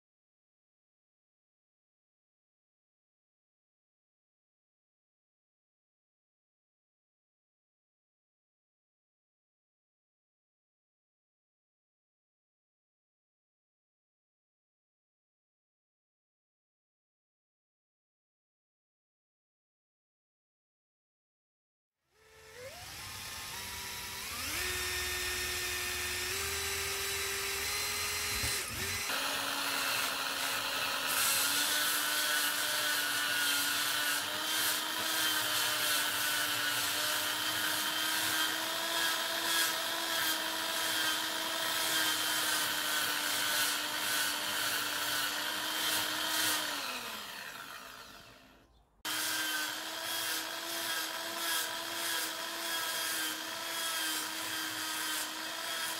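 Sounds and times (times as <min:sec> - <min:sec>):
drill motor whine: 0:22.2 - 0:55.9
power drill boring wood: 0:22.2 - 0:55.9
sanding rasp on wood: 0:27.6 - 0:46.8, 0:49.1 - 0:55.9.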